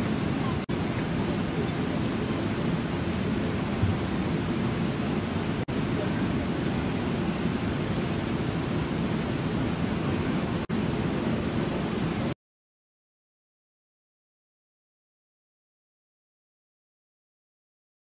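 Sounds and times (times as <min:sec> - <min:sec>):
waterfall rushing: 0:00.0 - 0:12.3.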